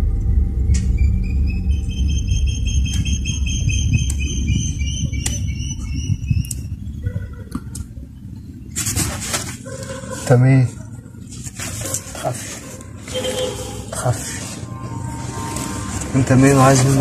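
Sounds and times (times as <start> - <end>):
high fluttering trill: 0.0 - 7.2
low rumbling drone: 0.0 - 8.7, 12.8 - 17.0
sharp clicks: 4.0 - 4.3, 5.2 - 5.5, 6.4 - 6.7.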